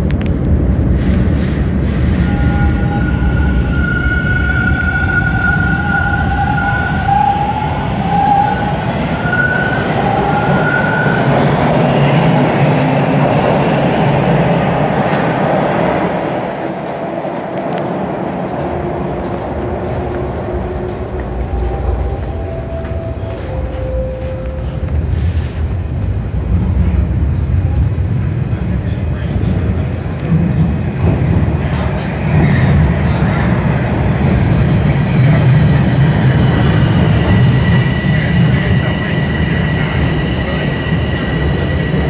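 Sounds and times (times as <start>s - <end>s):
train cars rumbling: 0.0s - 42.0s
subway train motor whine: 1.6s - 29.0s.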